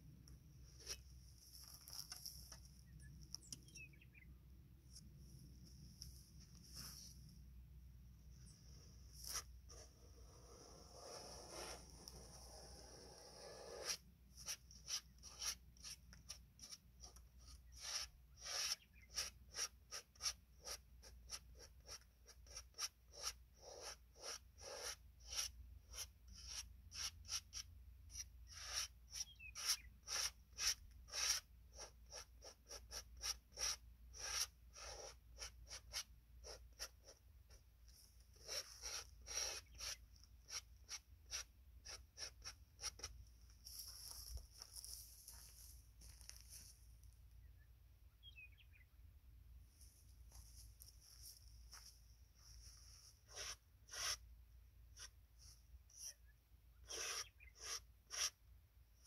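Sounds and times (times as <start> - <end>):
brush scrubbing paint on canvas: 9.1 - 46.7, 49.8 - 54.2.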